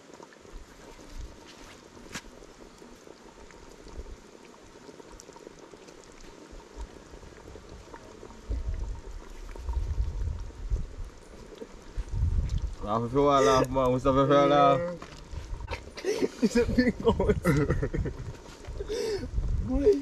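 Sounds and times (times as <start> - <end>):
soup bubbling: 0.0 - 20.0.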